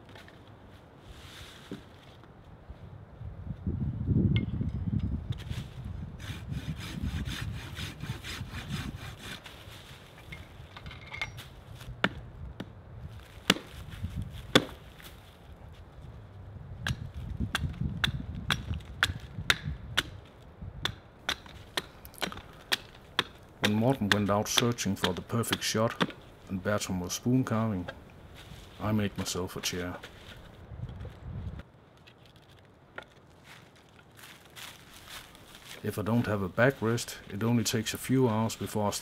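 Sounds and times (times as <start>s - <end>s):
hand saw rasping through wood: 6.2s - 9.6s.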